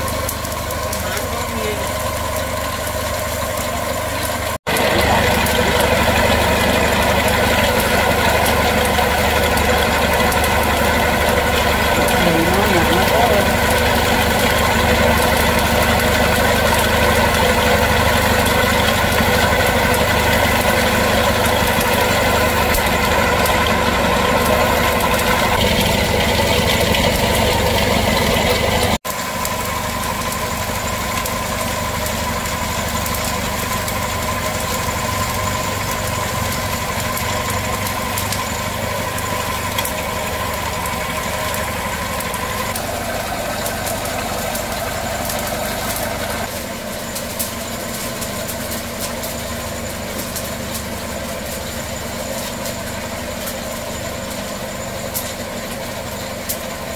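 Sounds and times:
extruder machine humming: 0.0s - 56.9s.

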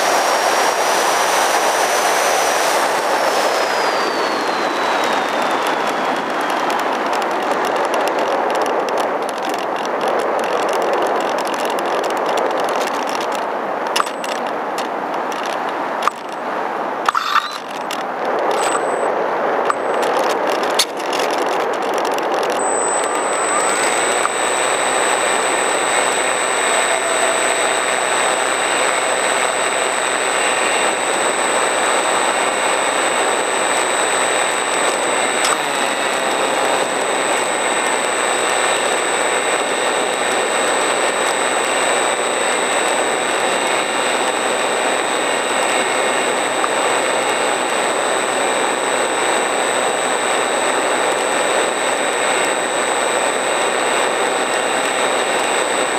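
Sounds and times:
rushing air: 0.0s - 6.4s
thin high whine: 0.0s - 9.1s, 13.9s - 14.4s, 17.0s - 21.8s, 22.5s - 55.9s
model plane motor drone: 0.0s - 16.5s, 17.1s - 55.9s.

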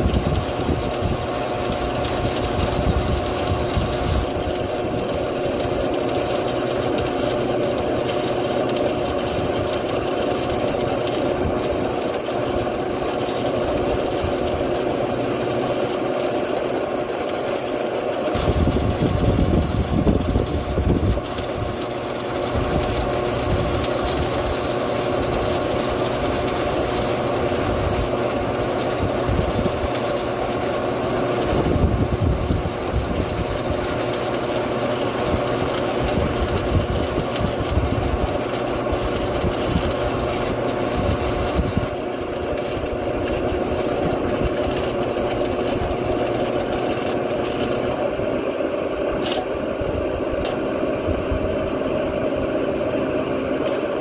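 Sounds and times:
crackling hiss: 0.0s - 48.1s
welder humming: 0.0s - 54.0s
sharp click: 49.2s - 49.5s, 50.4s - 50.6s.

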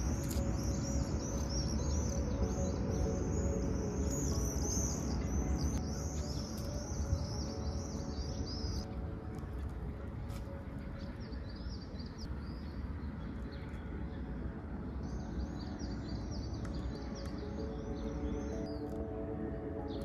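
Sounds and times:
quiet background music: 0.0s - 20.0s.

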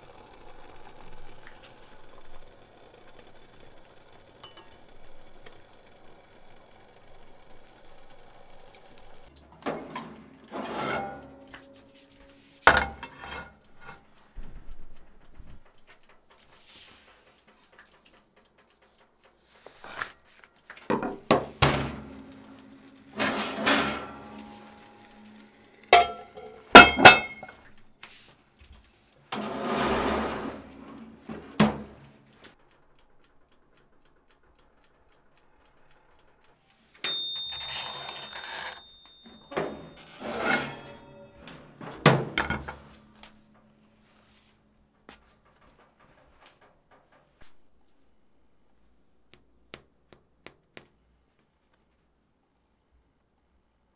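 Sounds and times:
cast iron clanks and scrapes: 9.7s - 11.9s, 12.6s - 14.0s, 20.9s - 25.2s, 25.9s - 27.6s, 39.3s - 43.1s.

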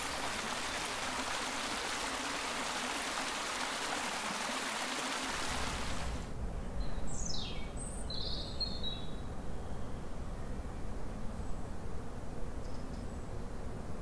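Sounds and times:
mountain stream rushing: 0.0s - 6.3s.

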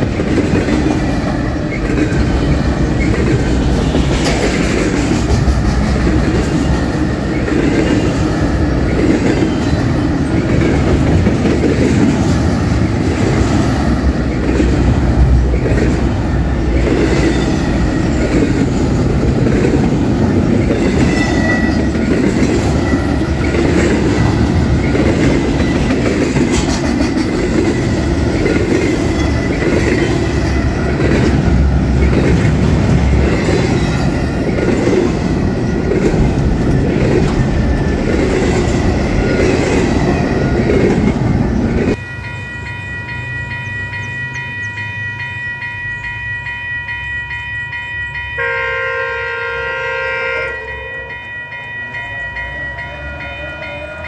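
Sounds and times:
train wheels over rail joints: 0.0s - 48.4s
locomotive air horn chord: 48.4s - 51.2s.

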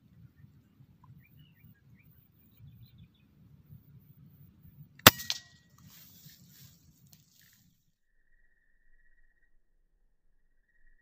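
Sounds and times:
air rifle crack: 5.0s - 6.0s.

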